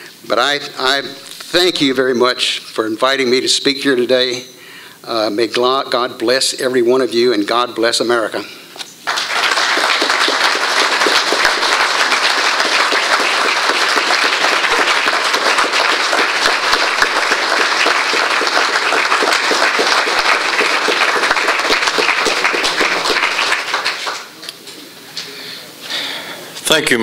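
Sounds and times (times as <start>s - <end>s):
audience applauding: 9.0s - 24.5s.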